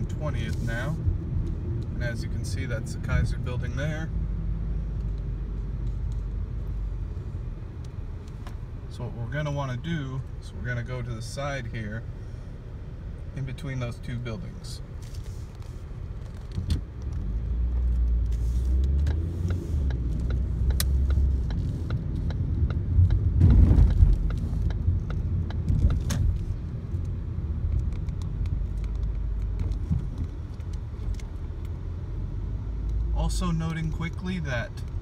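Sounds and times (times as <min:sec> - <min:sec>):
car engine and road rumble: 0:00.0 - 0:35.0
light clicks and rattles: 0:19.8 - 0:31.8.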